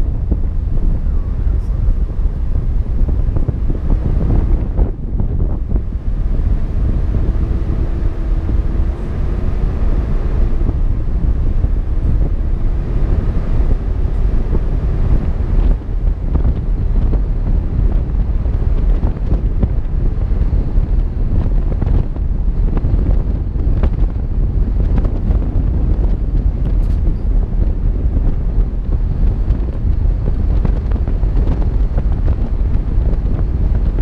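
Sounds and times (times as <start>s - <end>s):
vehicle tyres rumbling on road: 0.0s - 34.0s
wind buffeting microphone: 0.0s - 34.0s
light clicks from road: 26.6s - 27.3s.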